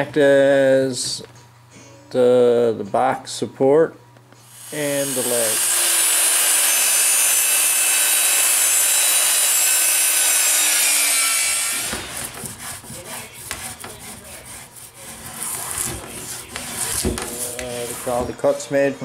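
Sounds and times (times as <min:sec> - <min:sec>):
electric planer whining: 0:04.5 - 0:12.4
hand plane scraping wood: 0:10.9 - 0:18.8.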